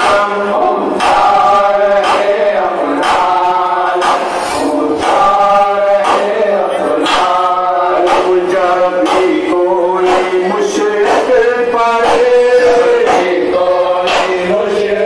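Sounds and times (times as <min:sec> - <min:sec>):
men chanting in chorus: 0:00.0 - 0:15.0
sharp rhythmic beat: 0:00.0 - 0:15.0.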